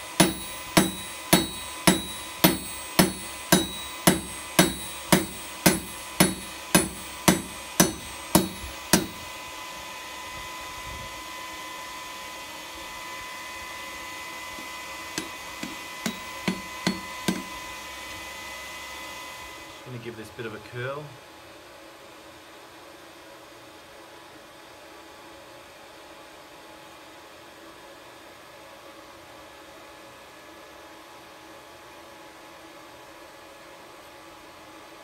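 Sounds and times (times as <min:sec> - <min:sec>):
hammer ringing on anvil: 0:00.0 - 0:09.3, 0:15.1 - 0:17.6.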